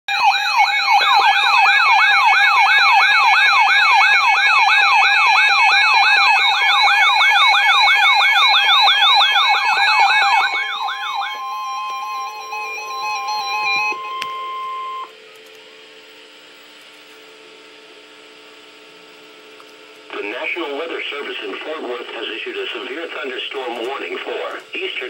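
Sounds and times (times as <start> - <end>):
falling siren-like whoop: 0.1 - 15.2
steady electronic tones: 0.1 - 15.3.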